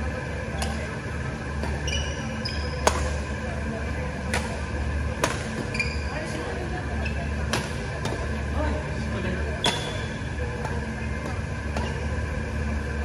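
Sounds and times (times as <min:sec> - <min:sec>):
low hum: 0:00.0 - 0:13.0
court shoes squeaking: 0:00.4 - 0:03.5, 0:04.2 - 0:08.5, 0:09.5 - 0:13.0
racket hitting shuttlecock: 0:02.8 - 0:03.2, 0:04.3 - 0:04.6, 0:05.2 - 0:05.7, 0:07.4 - 0:08.3, 0:09.6 - 0:12.1.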